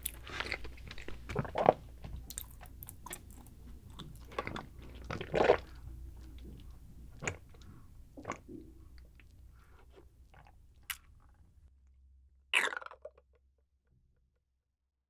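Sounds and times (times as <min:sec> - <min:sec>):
swallowing: 0:00.0 - 0:09.4.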